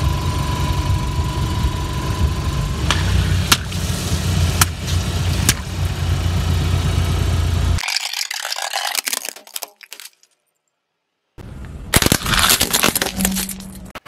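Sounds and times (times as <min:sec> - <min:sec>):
car engine idling: 0:00.0 - 0:07.8.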